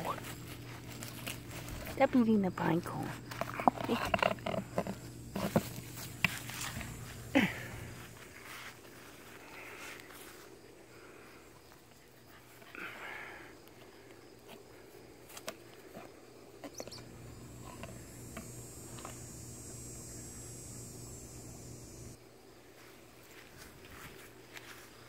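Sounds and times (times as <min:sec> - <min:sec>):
faint high hiss: 0:16.8 - 0:22.2.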